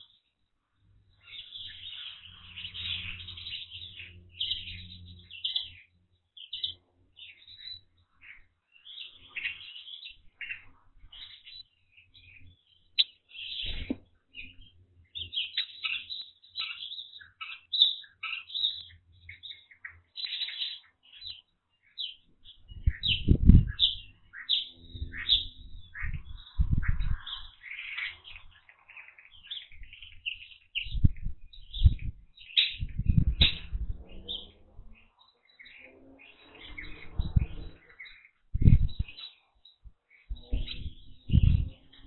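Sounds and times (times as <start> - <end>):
songbirds chirping: 0.0 - 42.0
low rumbling thumps: 22.7 - 23.9, 30.9 - 32.2, 32.8 - 35.0, 36.8 - 37.8, 38.5 - 39.1, 40.3 - 41.8.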